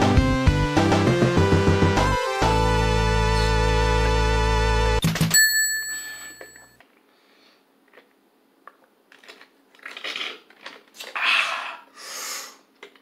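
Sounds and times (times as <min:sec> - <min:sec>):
music sting chord: 0:01.2 - 0:05.0
man gulping a drink: 0:08.7 - 0:11.9.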